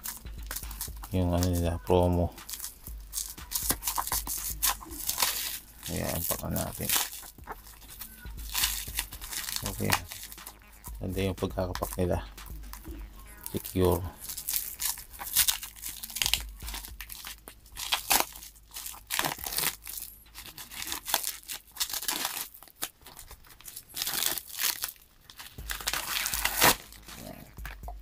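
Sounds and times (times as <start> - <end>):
plastic tearing: 0.0 - 10.6, 13.4 - 27.6
plastic packaging crinkling: 0.0 - 12.8, 13.4 - 27.8.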